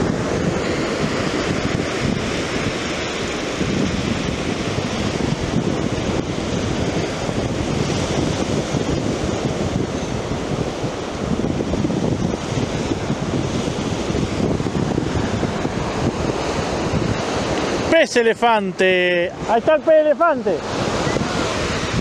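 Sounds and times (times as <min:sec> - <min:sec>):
ocean surf breaking on beach: 0:00.0 - 0:22.0
wind buffeting microphone: 0:00.0 - 0:22.0.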